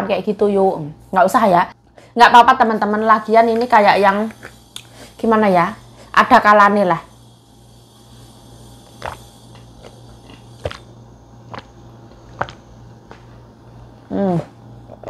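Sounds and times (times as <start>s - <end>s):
woman gulping water: 14.8s - 15.0s.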